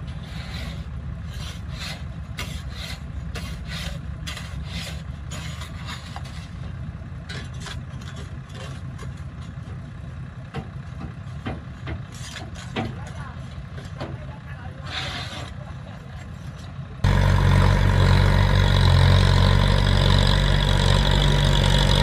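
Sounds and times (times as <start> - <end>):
bulldozer diesel engine running: 0.0 - 22.0
scraping and rattling: 0.1 - 9.9.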